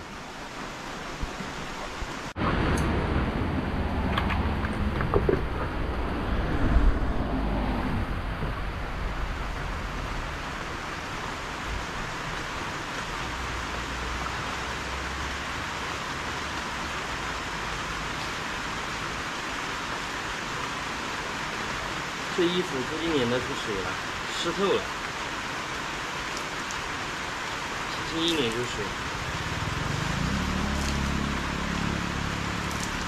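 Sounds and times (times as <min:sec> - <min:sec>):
rain falling: 0:00.0 - 0:33.0
low rumble: 0:02.4 - 0:10.3.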